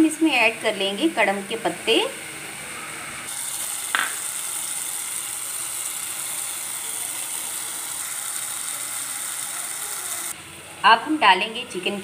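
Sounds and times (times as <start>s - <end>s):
food sizzling in a pan: 0.0s - 10.4s.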